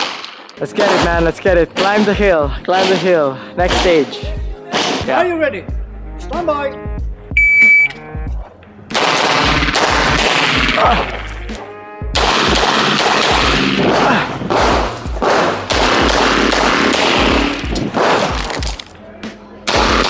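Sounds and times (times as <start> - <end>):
pistol shots in rapid strings: 0.0 - 4.1, 4.7 - 5.2, 8.9 - 11.2, 12.2 - 18.6, 19.7 - 20.0.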